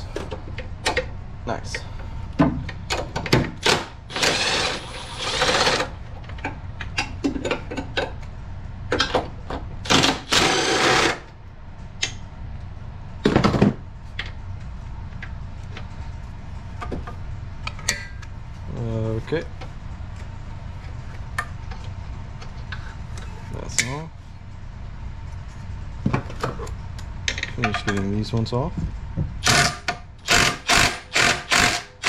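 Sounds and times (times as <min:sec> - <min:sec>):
cordless power tool spinning: 0:04.1 - 0:05.9, 0:09.9 - 0:11.3, 0:29.4 - 0:32.0.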